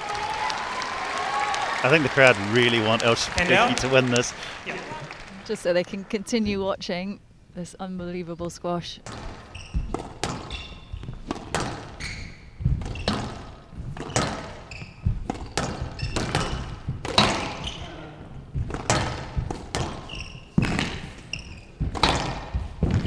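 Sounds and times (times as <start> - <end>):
shoes squeaking on court: 9.0 - 23.0
squash ball thuds: 9.0 - 23.0.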